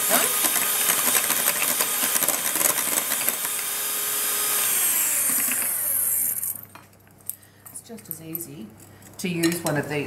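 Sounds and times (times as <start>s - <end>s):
electric mixer running: 0.0s - 6.6s.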